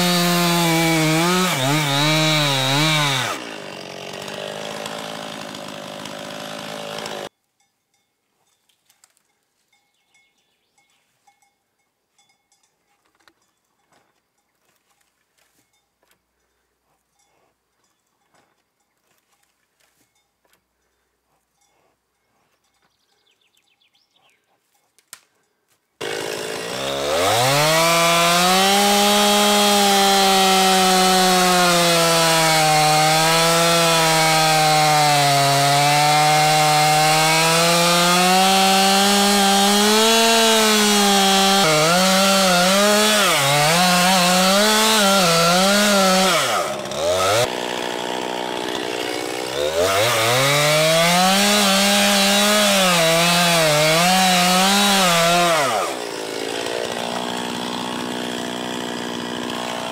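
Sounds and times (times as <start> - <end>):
chainsaw sawing and revving: 0.0 - 7.3, 26.0 - 59.9.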